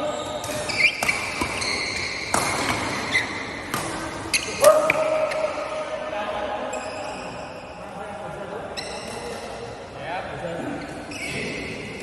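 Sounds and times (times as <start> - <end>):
shoes squeaking on floor: 0.0 - 3.6, 4.2 - 4.6, 6.7 - 7.6, 8.7 - 9.4, 10.8 - 12.0
rackets striking shuttlecock: 0.4 - 5.6.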